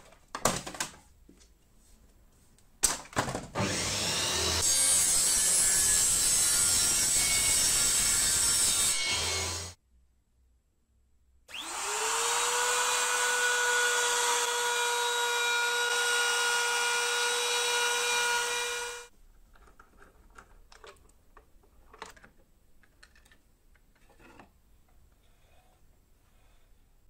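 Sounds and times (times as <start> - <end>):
router whining and cutting: 3.6 - 9.8, 11.5 - 19.1.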